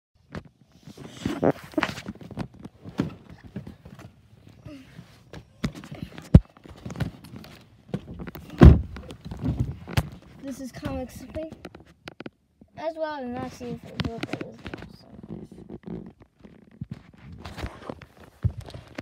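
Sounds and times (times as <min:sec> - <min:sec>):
heavy thump: 0:08.0 - 0:10.2.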